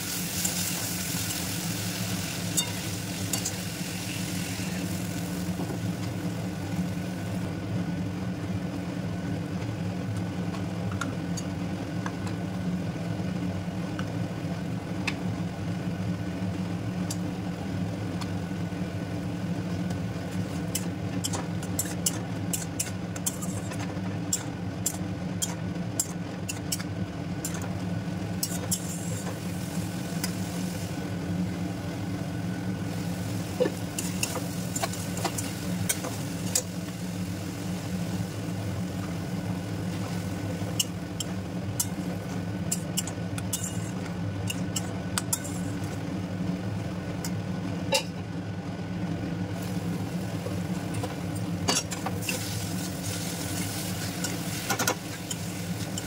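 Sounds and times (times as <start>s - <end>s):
faint sizzle: 0.0s - 8.2s, 27.4s - 47.1s, 49.3s - 56.0s
steady low hum: 0.0s - 56.0s.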